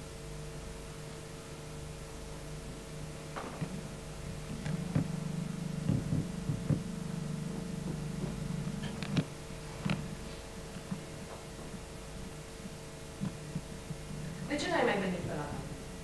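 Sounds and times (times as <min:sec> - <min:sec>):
low steady hum: 0:00.0 - 0:16.0
footsteps on wooden stage: 0:07.5 - 0:10.2.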